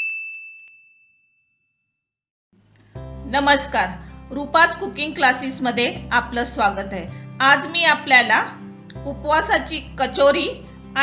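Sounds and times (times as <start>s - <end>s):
bell-like chime ringing: 0.0s - 1.9s
background music: 2.6s - 11.0s.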